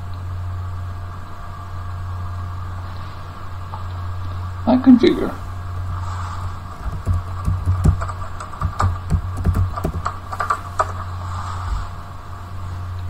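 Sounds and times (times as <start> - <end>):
keyboard keys clicking: 6.8 - 11.0.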